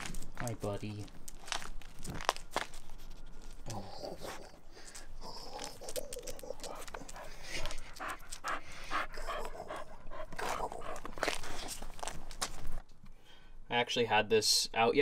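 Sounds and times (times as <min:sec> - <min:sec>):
dog panting: 0:03.8 - 0:12.2.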